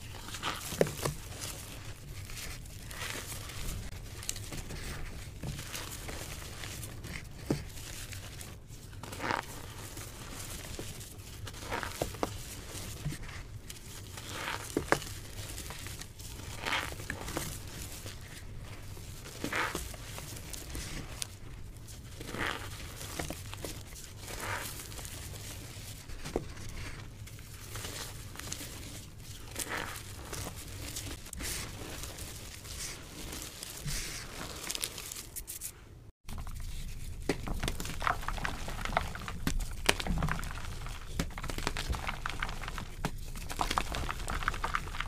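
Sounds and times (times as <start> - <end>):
chalk blocks crunching by hand: 36.3 - 45.0.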